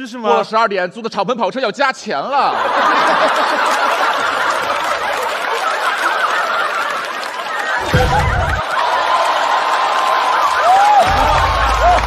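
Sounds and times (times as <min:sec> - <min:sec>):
studio audience laughing: 0:02.4 - 0:09.6.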